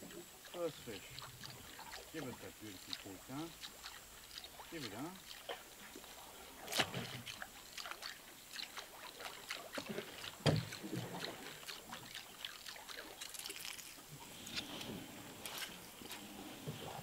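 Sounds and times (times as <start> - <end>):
water splashing against boat: 0.0 - 17.0
hollow thump: 10.4 - 10.7.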